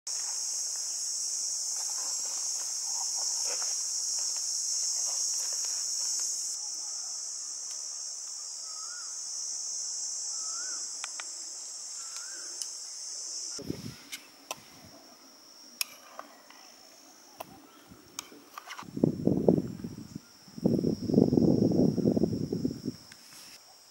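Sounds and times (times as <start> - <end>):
high-pitched insect chorus: 0.1 - 23.9.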